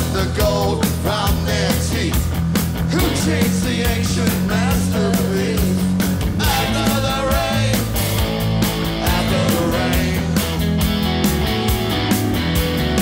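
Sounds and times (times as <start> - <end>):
man singing: 0.0 - 2.3, 2.9 - 8.0, 8.9 - 10.5
bass guitar: 0.0 - 13.0
drums: 0.0 - 13.0
electric guitars: 0.0 - 13.0.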